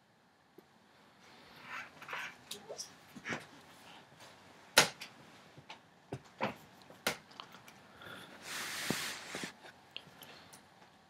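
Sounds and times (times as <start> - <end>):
hissy rustle or breath: 8.0 - 10.6.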